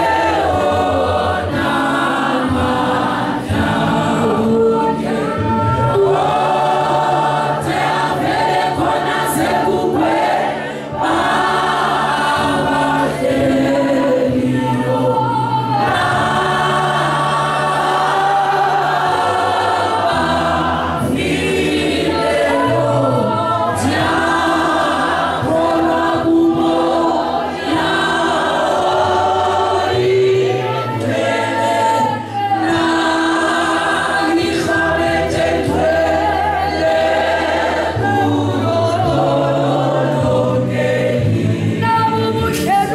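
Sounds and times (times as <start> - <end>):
congregation singing: 0.0 - 42.9.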